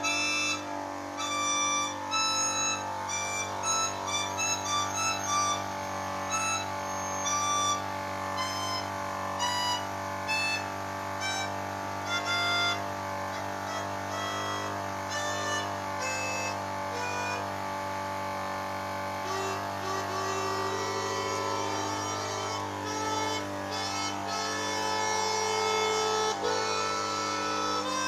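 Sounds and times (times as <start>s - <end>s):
air compressor motor hum: 0.0s - 28.0s
melodica held notes: 0.0s - 28.0s.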